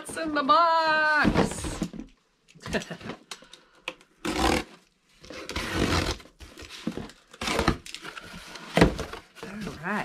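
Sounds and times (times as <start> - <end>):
box cutter slitting cardboard: 4.2 - 9.2.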